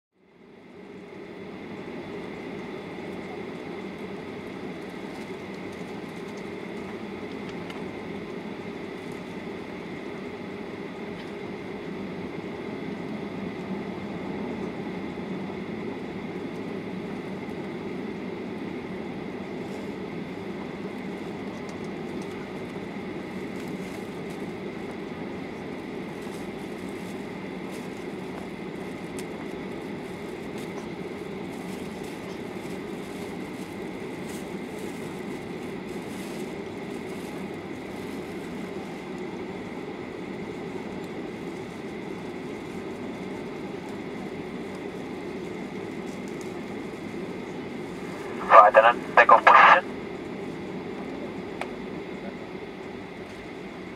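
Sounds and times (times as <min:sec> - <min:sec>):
aircraft cabin engine rumble: 0:00.3 - 0:53.9
high engine whine: 0:46.4 - 0:52.2.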